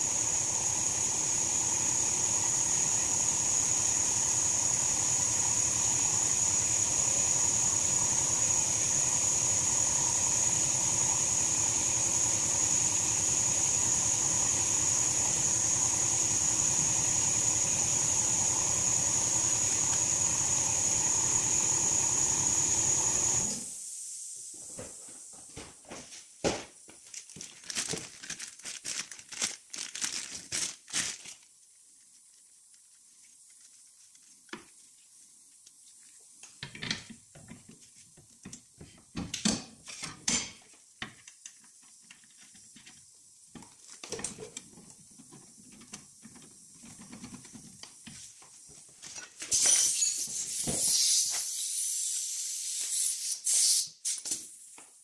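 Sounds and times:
tools and parts clicking and scraping: 49.0s - 51.2s.

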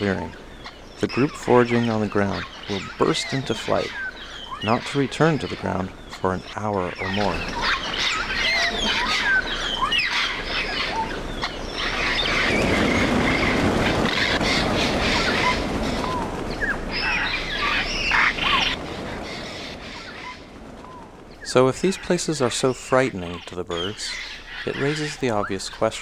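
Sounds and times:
parrots whistling and squawking: 0.0s - 20.4s
rushing of many wings: 0.0s - 26.0s.

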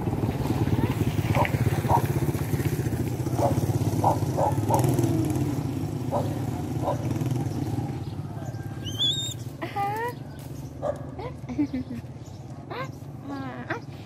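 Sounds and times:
small engine running: 0.0s - 10.1s.

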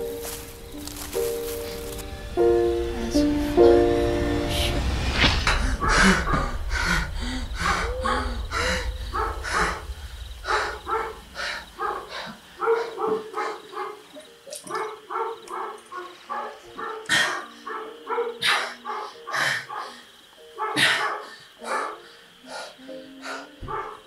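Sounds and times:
low rumble: 0.0s - 12.6s
dog barking: 9.1s - 9.9s, 10.5s - 22.0s, 23.6s - 24.0s.

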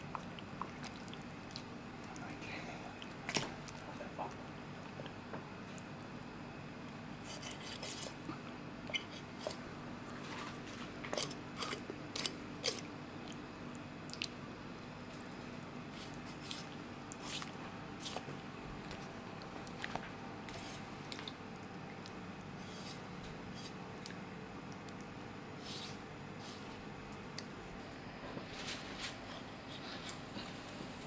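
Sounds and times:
wet squishing: 0.0s - 6.2s, 10.4s - 14.4s, 15.1s - 23.0s
faint low hum: 0.0s - 31.0s.

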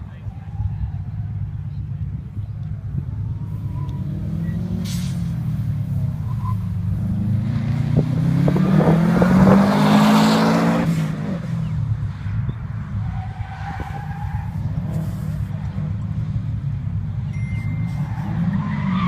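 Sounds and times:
car engine accelerating past: 3.3s - 11.8s
thin squeal: 17.3s - 18.6s.

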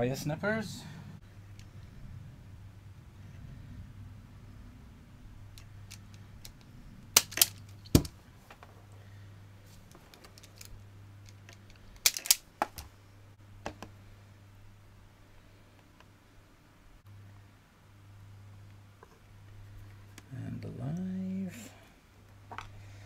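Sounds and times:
faint low hum: 0.0s - 23.0s
wire strippers clicking: 5.5s - 8.1s, 10.1s - 12.9s.

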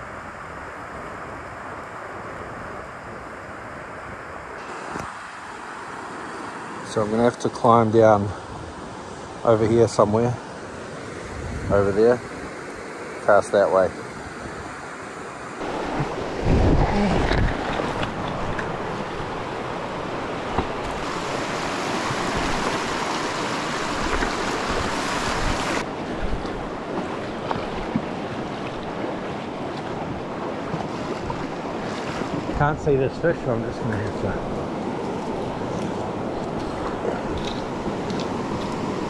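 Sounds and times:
stream rushing over stones: 4.6s - 8.2s, 14.6s - 39.0s.

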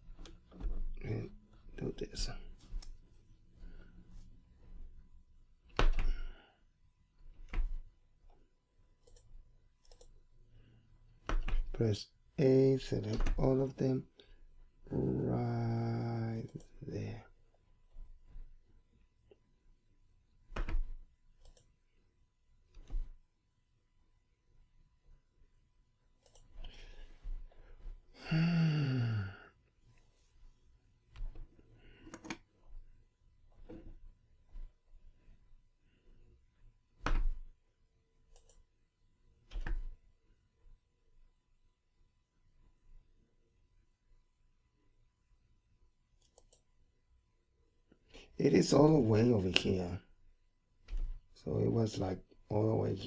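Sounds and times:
mouse and keyboard clicks: 32.0s - 32.5s.

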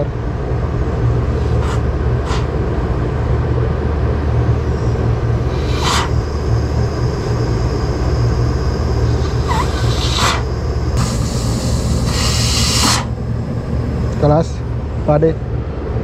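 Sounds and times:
low machinery rumble: 0.0s - 16.0s
pressurised gas hissing: 1.2s - 2.5s, 4.8s - 7.0s, 9.1s - 14.5s.

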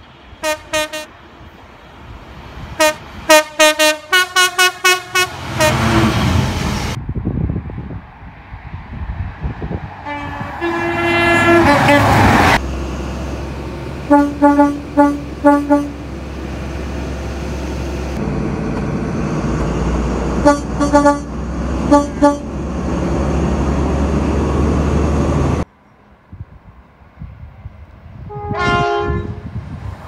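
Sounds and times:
train rushing past: 0.0s - 25.7s, 26.6s - 30.0s
train horn: 0.4s - 1.1s, 2.8s - 6.3s, 10.0s - 12.6s, 14.1s - 16.0s, 20.4s - 21.3s, 21.9s - 22.5s, 28.3s - 29.5s
short horn toots: 10.1s - 12.2s, 14.1s - 16.0s, 21.9s - 22.5s, 28.3s - 29.4s
diesel engine drumming: 10.1s - 25.6s.

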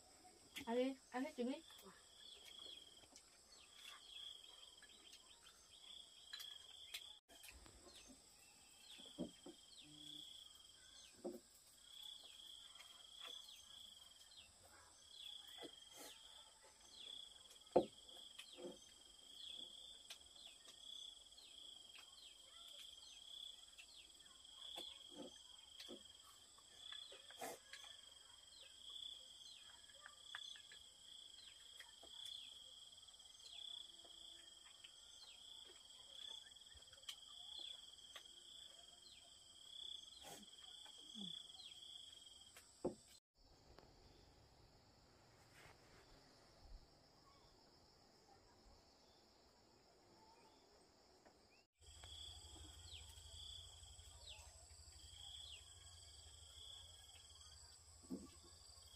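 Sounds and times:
insects chirping: 51.8s - 58.9s.

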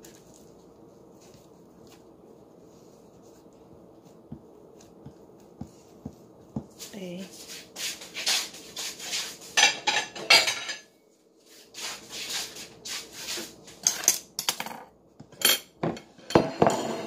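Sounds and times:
plate and utensils clinking: 9.6s - 10.9s, 13.8s - 17.0s.

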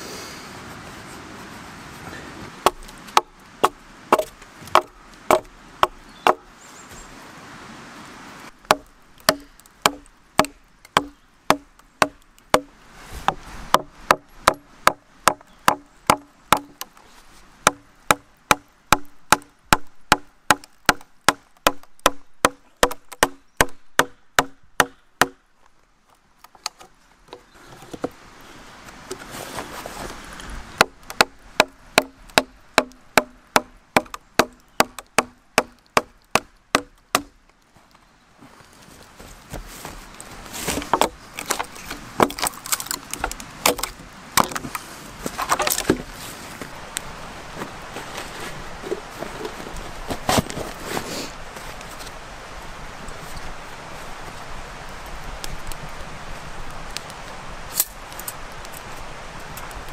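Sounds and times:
axe chopping into log: 2.6s - 6.4s, 8.7s - 16.9s, 17.6s - 25.4s, 30.8s - 37.4s.

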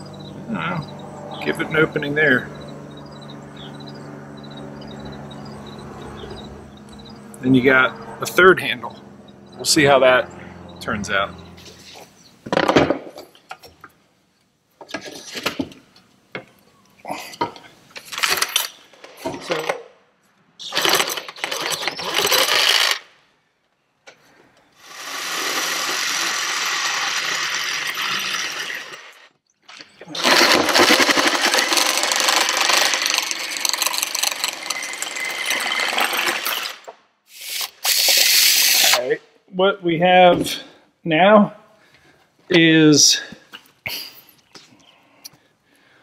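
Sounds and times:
reciprocating saw cutting plastic: 20.6s - 23.1s, 24.8s - 29.4s, 30.1s - 39.0s
cordless drill boring plastic: 20.7s - 23.0s, 24.8s - 29.3s, 30.2s - 36.7s, 37.3s - 39.0s
power tool bursts: 20.7s - 23.1s, 24.8s - 29.3s, 30.1s - 39.1s.

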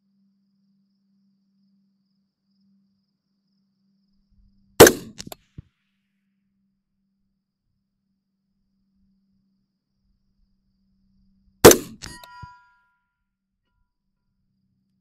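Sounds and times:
rifle shot: 4.8s - 5.4s, 11.6s - 12.3s.

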